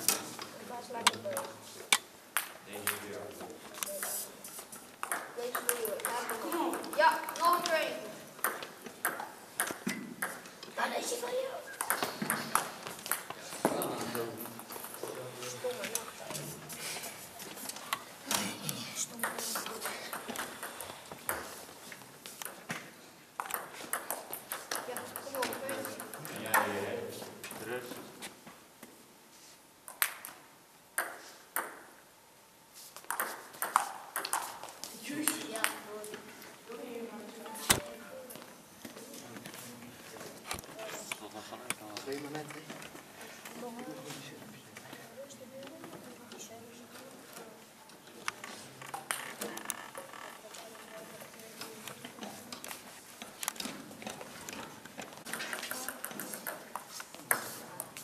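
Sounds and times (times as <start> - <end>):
table tennis balls clicking: 4.9 - 10.8, 11.8 - 13.8, 19.2 - 21.6, 23.4 - 26.8, 31.0 - 32.0, 33.0 - 36.2, 48.3 - 58.0
table tennis ball clicking: 33.1 - 34.5.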